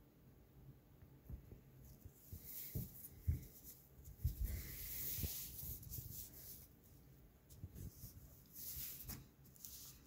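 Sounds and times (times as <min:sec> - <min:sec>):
soft handling bumps: 0:01.2 - 0:06.6
cloth rustling: 0:01.7 - 0:10.0.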